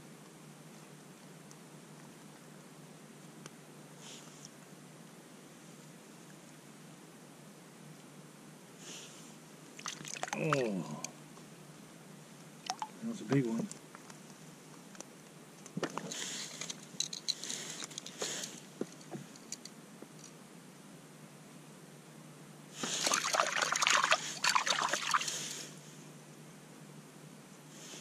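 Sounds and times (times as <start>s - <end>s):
water splashing and trickling: 9.8s - 10.9s, 12.6s - 13.0s, 22.8s - 25.5s.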